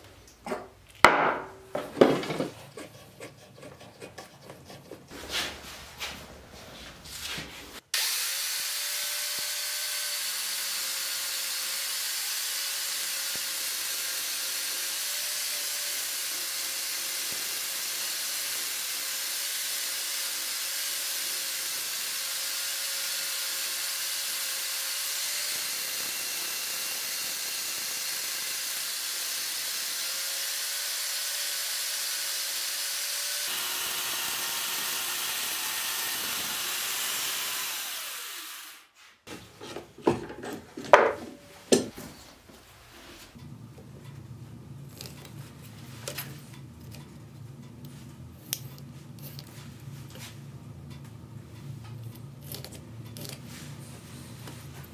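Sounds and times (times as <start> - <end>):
sharp knocks and clunks: 0.4 - 2.6, 39.3 - 42.2
chainsaw attachment cutting wood: 7.9 - 38.9.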